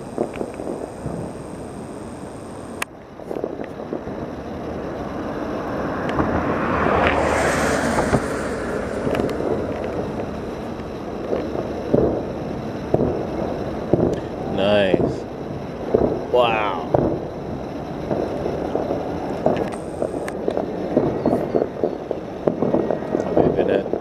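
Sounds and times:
distant fireworks bursts: 0.0 - 24.0
sharp firework reports: 0.0 - 24.0
wind on microphone: 5.3 - 24.0.

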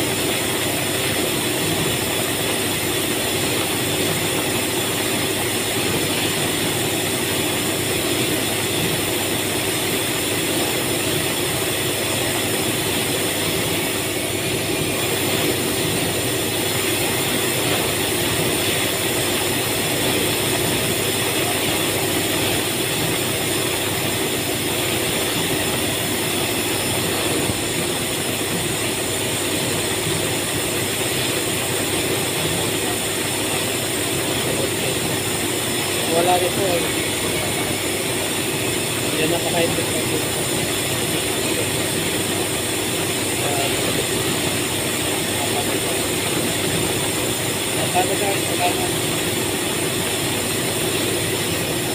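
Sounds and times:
factory machinery droning: 0.0 - 51.9.

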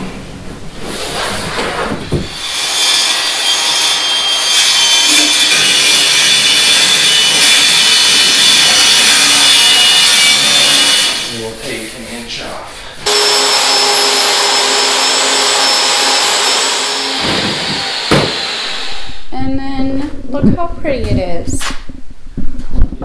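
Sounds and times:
circular saw cutting wood: 2.3 - 19.3.

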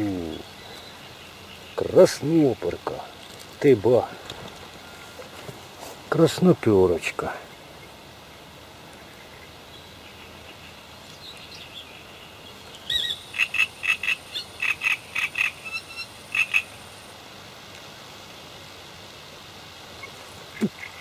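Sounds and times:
frog croaking: 12.9 - 16.9.

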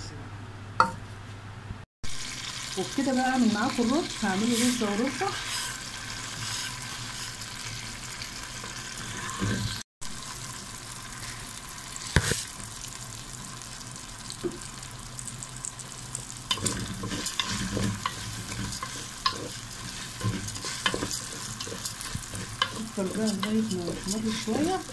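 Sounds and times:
rice sizzling in a pan: 2.0 - 24.9
wooden spoon scraping a pan: 3.7 - 7.9, 8.5 - 9.8, 16.5 - 24.9.

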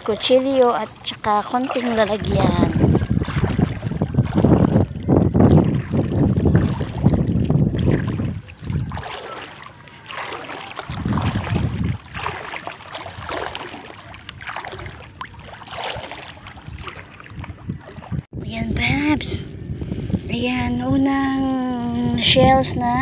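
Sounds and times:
legs wading through water: 0.0 - 18.3
wind buffeting microphone: 0.0 - 23.0.

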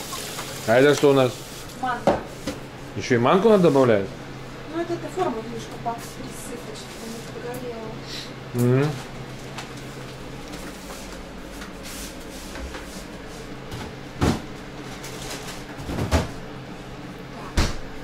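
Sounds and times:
knocks and thuds: 17.6 - 17.9.

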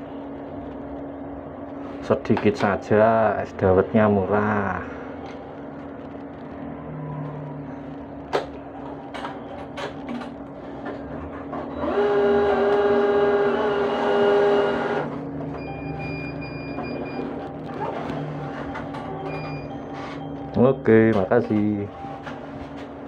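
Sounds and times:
cash machine mechanism whirring: 8.5 - 23.0
high electronic beeping: 15.6 - 17.6, 18.3 - 22.3.

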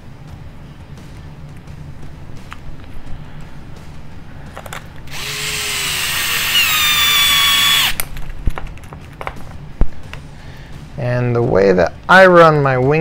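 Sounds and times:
power drill driving screw: 5.1 - 8.0.

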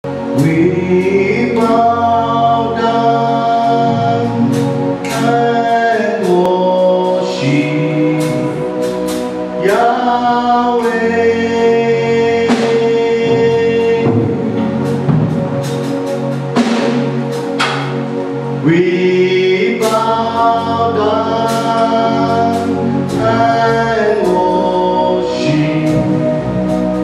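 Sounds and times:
choir singing in harmony: 0.1 - 27.0.

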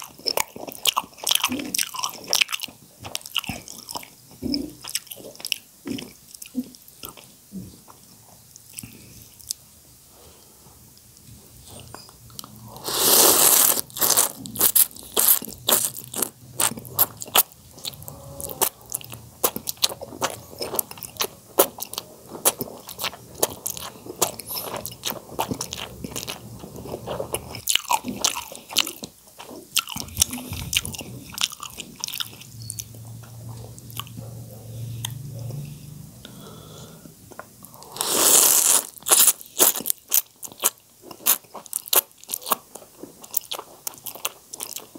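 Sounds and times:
wet chewing and lip-smacking: 11.7 - 34.4, 37.3 - 44.9
noodles being slurped: 12.7 - 17.4, 37.8 - 39.9.

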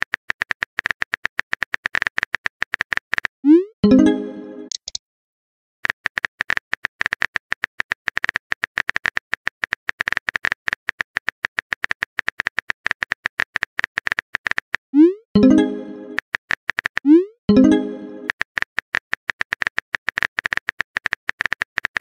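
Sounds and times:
phone keyboard typing clicks: 4.6 - 5.0.

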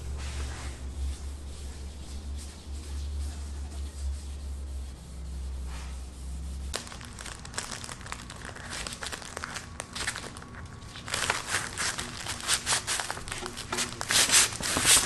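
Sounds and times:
low hum: 0.0 - 6.8
faint rubbing: 0.1 - 6.9
sandpaper crinkling in plastic sleeve: 2.4 - 15.0.

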